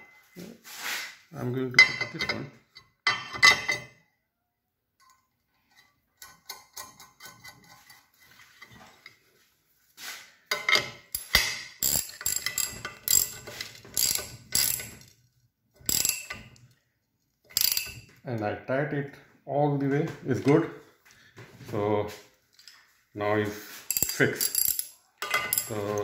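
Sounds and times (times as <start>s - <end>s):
ratchet wrench clicking: 11.2s - 15.1s, 15.9s - 16.5s, 17.5s - 18.1s, 23.9s - 25.9s.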